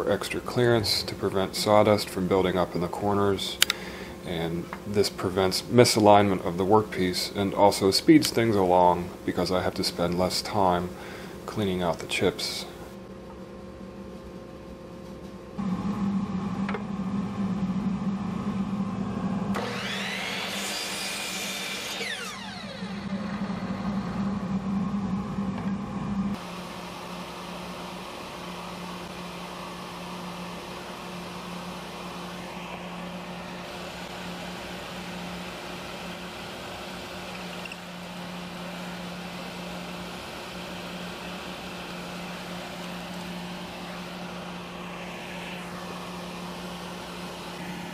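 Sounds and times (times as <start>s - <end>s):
quieter machine hum with hiss: 0.0s - 47.9s
jointer humming: 15.6s - 47.9s
machine whine: 15.6s - 47.9s.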